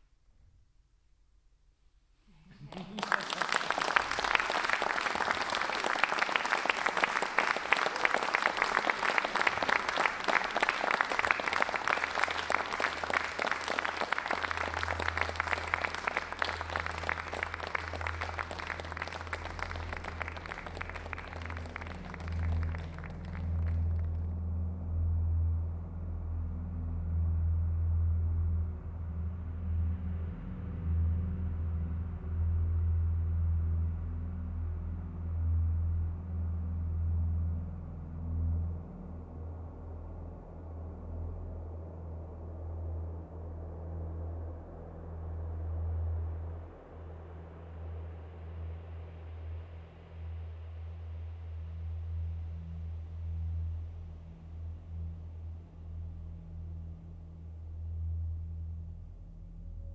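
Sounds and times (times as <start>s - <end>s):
audience applauding: 2.5s - 24.2s
low rumble: 8.6s - 59.9s.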